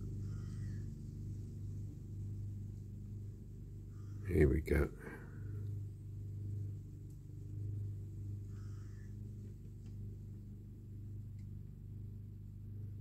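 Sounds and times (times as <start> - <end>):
distant lawnmower engines droning: 0.0 - 13.0.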